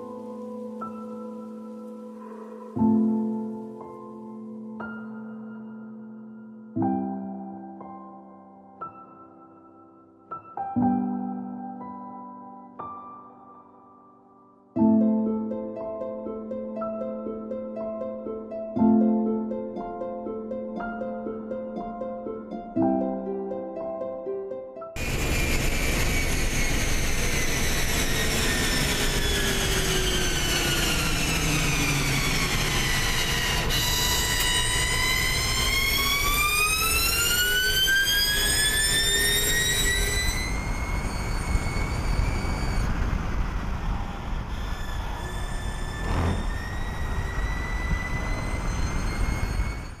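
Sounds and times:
electric race car drivetrain whining: 25.0s - 50.0s
road and wind rumble: 39.4s - 50.0s.

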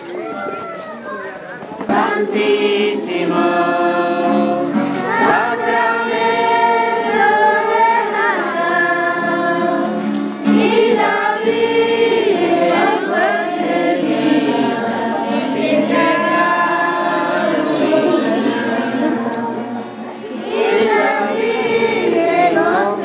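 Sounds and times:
group singing a hymn: 1.8s - 23.0s.

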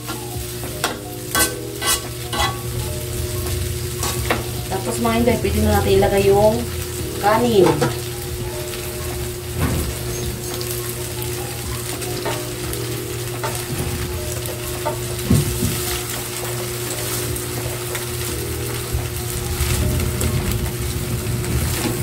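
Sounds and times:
food sizzling in a wok: 0.0s - 22.0s
metal pot knocks and scrape: 1.4s - 2.6s
low hum: 2.4s - 7.4s, 18.8s - 22.0s.

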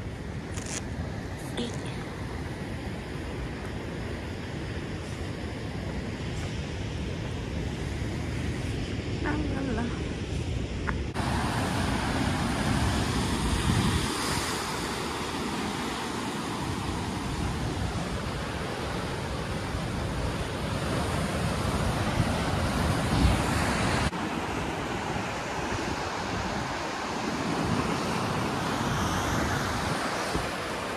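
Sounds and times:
wind buffeting microphone: 2.5s - 30.9s
surf breaking over rocks: 11.1s - 25.4s.

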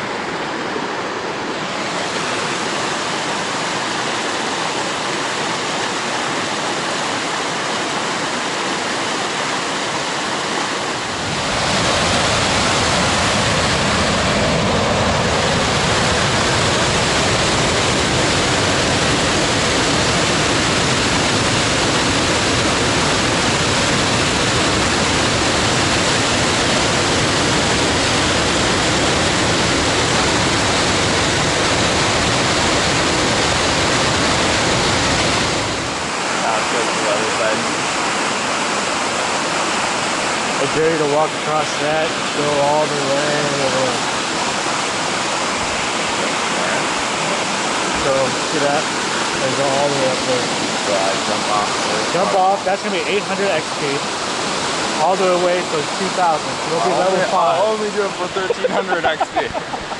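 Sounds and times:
creek rushing over rocks: 0.0s - 59.9s
waterfall roaring: 0.0s - 59.9s.

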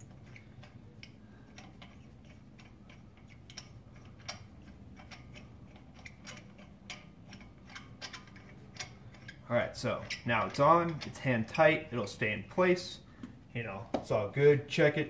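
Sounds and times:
sharp metallic clicks: 0.0s - 12.0s
metallic ticking of nuts threading: 0.0s - 15.0s.

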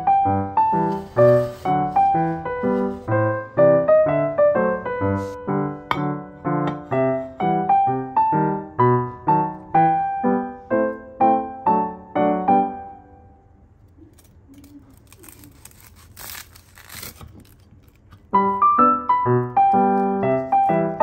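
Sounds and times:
soft piano music: 0.0s - 13.9s, 18.2s - 21.0s
knife sawing through toasted bread: 0.8s - 3.1s, 15.0s - 17.3s.

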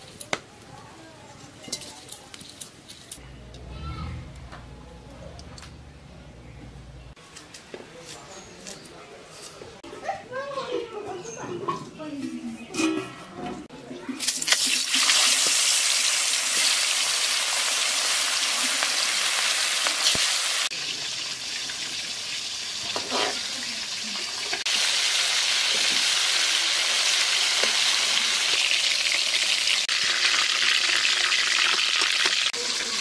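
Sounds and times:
fish sizzling in hot oil: 14.2s - 33.0s.

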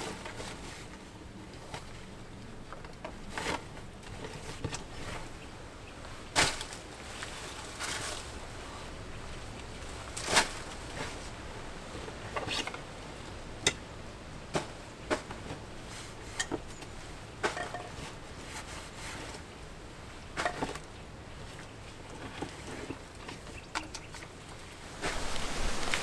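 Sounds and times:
camping gear knocks and rustles: 13.7s - 19.4s, 20.3s - 24.3s, 24.9s - 26.0s.

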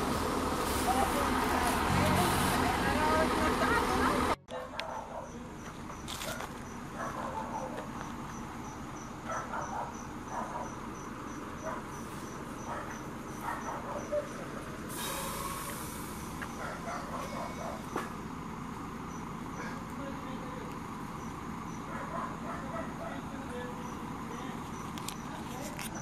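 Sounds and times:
cricket chirping: 4.9s - 15.3s, 16.2s - 26.0s
short hiss: 14.9s - 16.3s.

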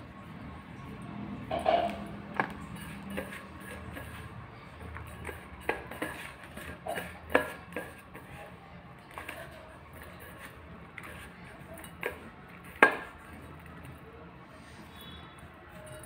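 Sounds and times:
hand scraping steel bowl: 1.4s - 14.0s
fingers tapping metal bowl: 1.5s - 4.2s.

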